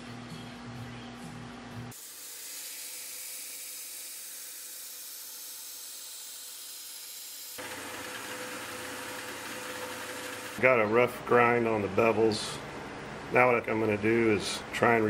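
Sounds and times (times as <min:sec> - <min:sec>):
belt grinder rasping on blade: 0:02.0 - 0:10.6
belt grinder running hum: 0:02.0 - 0:10.6.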